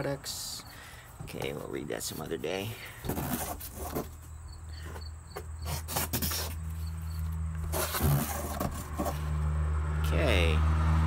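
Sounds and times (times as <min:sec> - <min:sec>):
cardboard rustling and scraping: 0:01.1 - 0:09.5.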